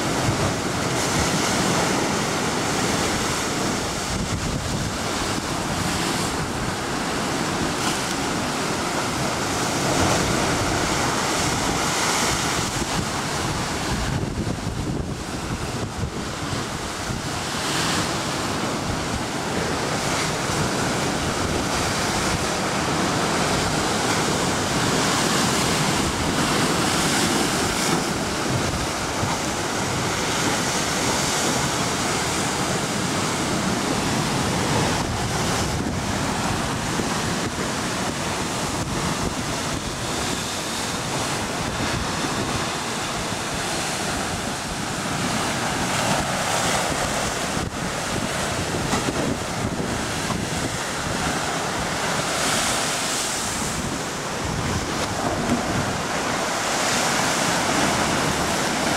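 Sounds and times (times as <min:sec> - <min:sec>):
ocean surf breaking on rocks: 0:00.0 - 0:58.9
wind rumble on microphone: 0:00.0 - 0:58.9.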